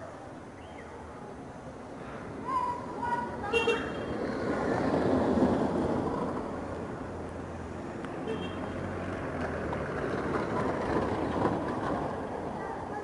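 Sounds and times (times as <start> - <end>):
car passing close: 1.9 - 12.6.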